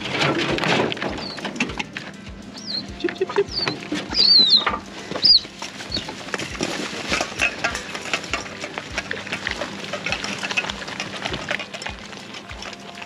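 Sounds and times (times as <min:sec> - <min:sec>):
high cub chirp: 0:01.2 - 0:06.2
metal bowls clinking: 0:03.0 - 0:13.0.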